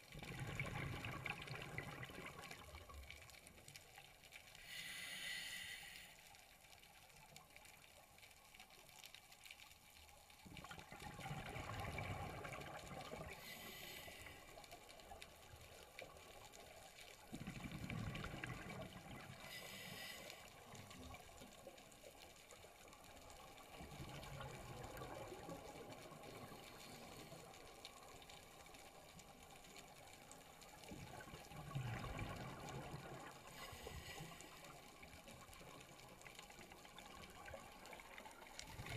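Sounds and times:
regulator hissing inhalations: 0:04.6 - 0:06.2.

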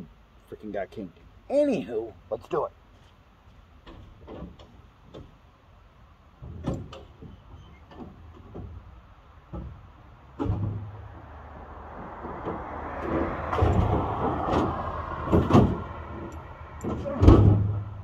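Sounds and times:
knocks and clunks of moving things: 0:02.9 - 0:05.4, 0:06.4 - 0:18.0
low rumbling clunks: 0:06.3 - 0:18.0.

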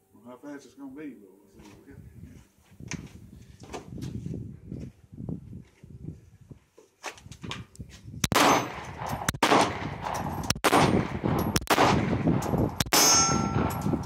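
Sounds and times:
pistol shots with echo: 0:08.2 - 0:13.9
steel plate ringing: 0:12.9 - 0:14.0.

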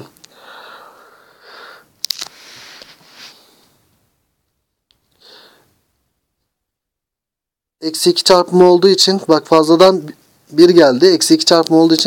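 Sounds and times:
man breathing and sniffing: 0:00.2 - 0:03.9.

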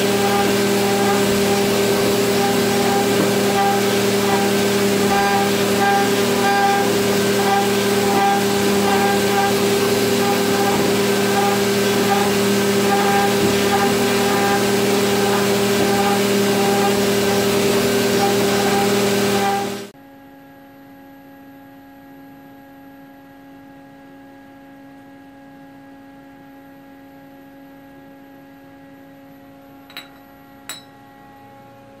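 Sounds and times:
mill cutting metal: 0:00.0 - 0:19.9.

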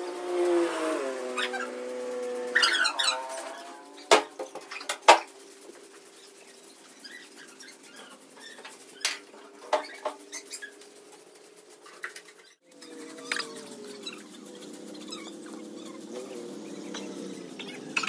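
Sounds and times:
broom sweeping concrete floor: 0:00.0 - 0:18.0.

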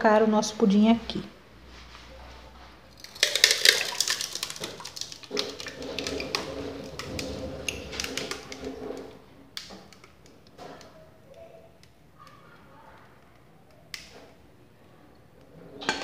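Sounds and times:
batter pouring through a sieve: 0:03.0 - 0:09.2
bowl and sieve rims clicking: 0:03.0 - 0:12.4.

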